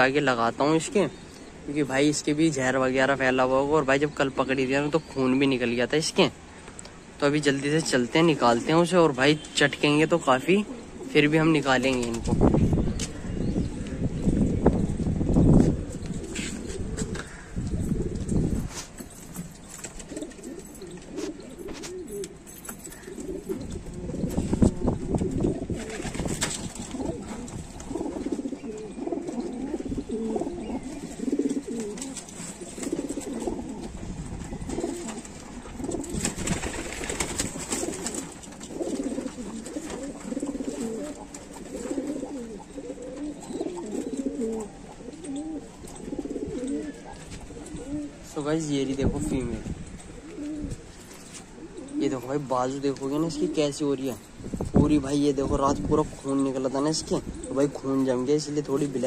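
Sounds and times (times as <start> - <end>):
pigeons cooing: 10.4 - 54.2, 55.6 - 59.0
rustling: 14.8 - 54.8.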